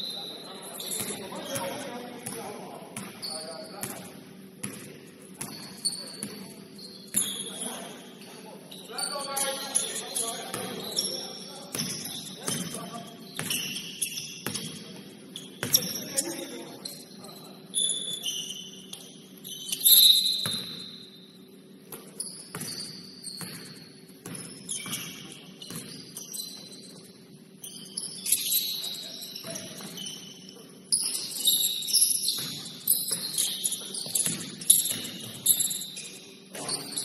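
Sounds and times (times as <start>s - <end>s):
shoes squeaking on gym court: 0.0s - 37.0s.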